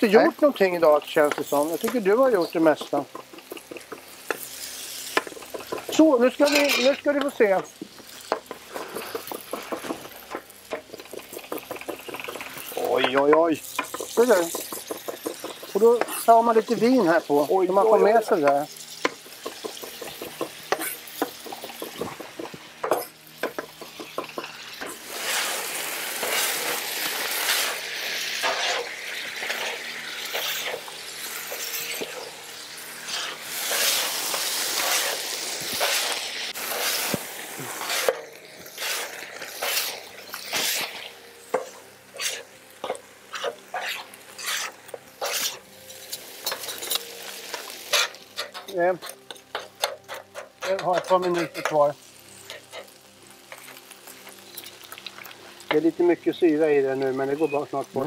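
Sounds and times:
food sizzling on griddle pan: 0:00.0 - 0:58.0
metal spatulas scraping pan: 0:05.4 - 0:07.1, 0:20.7 - 0:21.1, 0:28.4 - 0:30.8, 0:42.1 - 0:42.5, 0:43.3 - 0:45.6, 0:47.9 - 0:51.8.

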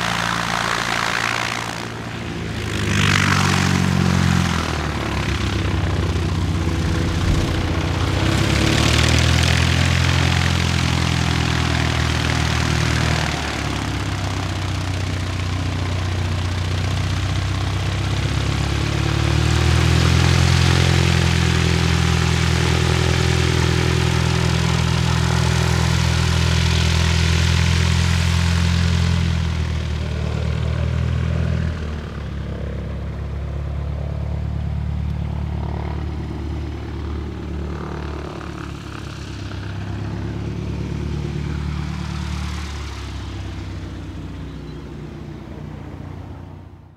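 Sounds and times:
airplane engine and propeller running: 0:00.0 - 0:46.9.

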